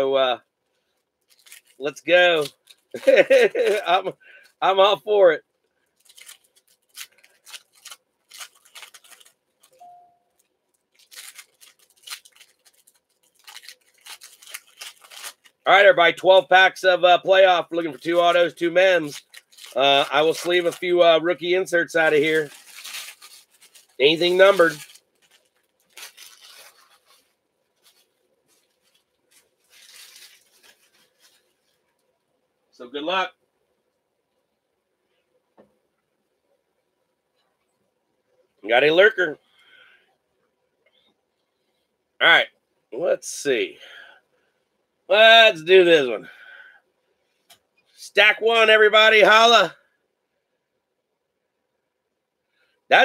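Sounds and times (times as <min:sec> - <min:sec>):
card packs rustling: 0:01.2 - 0:04.6, 0:06.0 - 0:15.6, 0:17.8 - 0:31.8
foil wrappers crinkling and tearing: 0:01.2 - 0:04.6, 0:05.9 - 0:15.7, 0:18.0 - 0:31.9
brief beep: 0:09.8 - 0:10.3.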